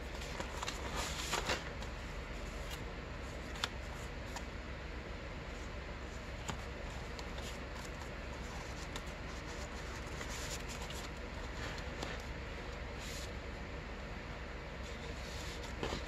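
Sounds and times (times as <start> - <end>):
paper rustling and sliding: 0.2 - 4.4, 6.1 - 13.4, 14.8 - 16.0.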